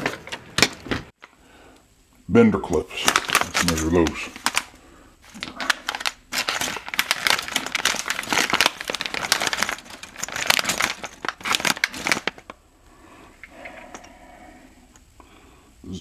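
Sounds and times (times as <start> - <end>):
plastic bag crinkling: 2.7 - 12.6.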